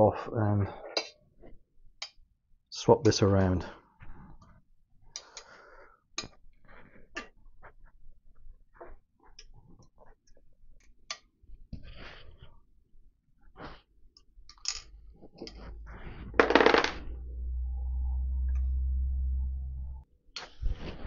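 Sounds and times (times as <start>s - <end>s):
metallic clicks of screws and tools: 14.4s - 15.6s.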